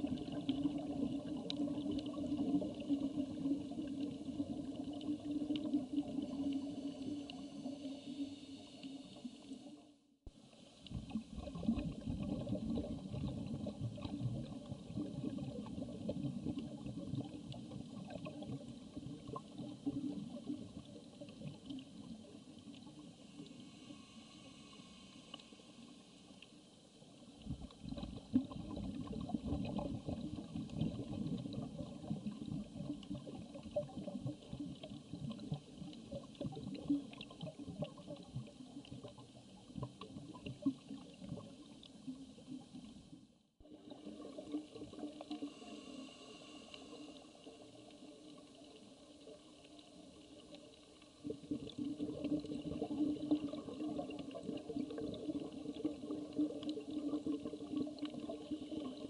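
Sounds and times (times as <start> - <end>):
underwater water noise with crackles: 0.0 - 59.0.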